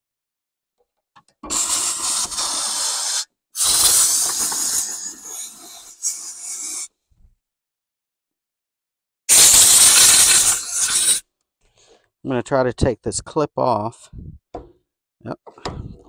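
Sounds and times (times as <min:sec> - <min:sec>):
compressed air blow gun hissing: 0:01.5 - 0:06.9, 0:09.3 - 0:11.2.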